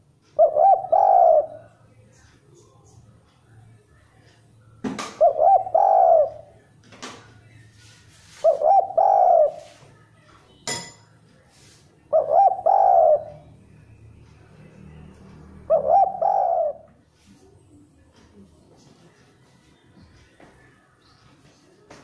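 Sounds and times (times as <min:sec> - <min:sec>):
dove cooing: 0:00.0 - 0:01.8, 0:05.1 - 0:06.6, 0:08.2 - 0:09.8, 0:12.0 - 0:13.7, 0:15.5 - 0:17.0.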